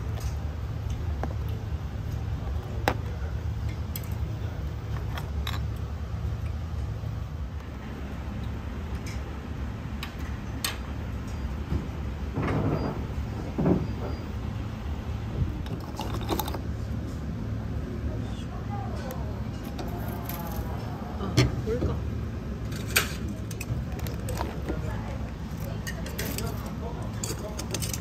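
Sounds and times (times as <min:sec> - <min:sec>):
low restaurant rumble: 0:00.0 - 0:28.0
dishes clicking and clinking: 0:25.5 - 0:28.0.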